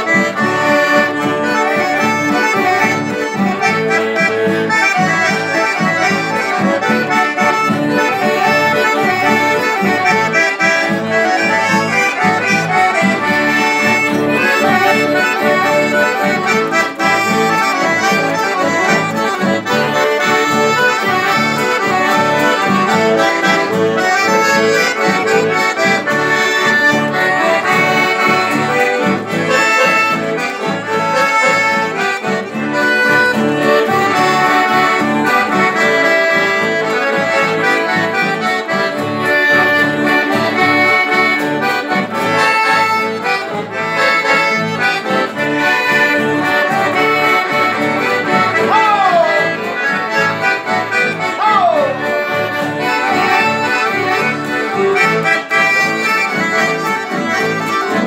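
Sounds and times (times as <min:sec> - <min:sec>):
accordion playing: 0:00.0 - 0:58.0.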